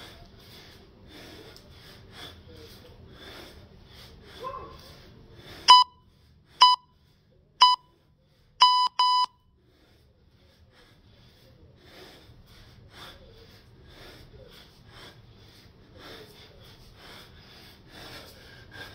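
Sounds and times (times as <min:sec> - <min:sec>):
electronic timer beeps: 0:05.7 - 0:06.0, 0:06.6 - 0:06.9, 0:07.6 - 0:07.9, 0:08.6 - 0:09.4.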